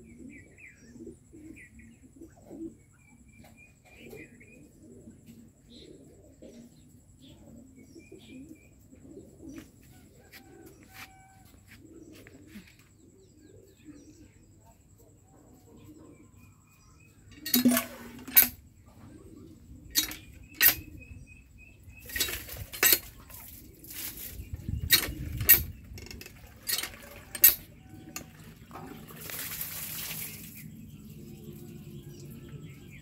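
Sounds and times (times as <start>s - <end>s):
doves cooing: 0.0s - 33.0s
small birds chirping: 0.0s - 33.0s
sharp knocks and clattering: 17.3s - 18.6s, 19.9s - 21.0s, 24.8s - 28.4s.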